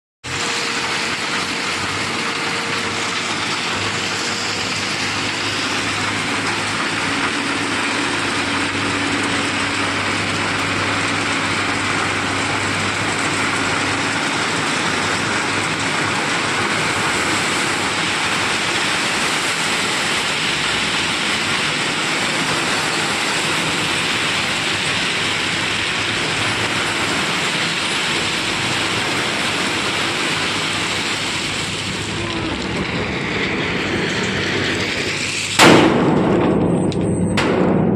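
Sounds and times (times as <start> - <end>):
truck engine hum: 0.2 - 37.9.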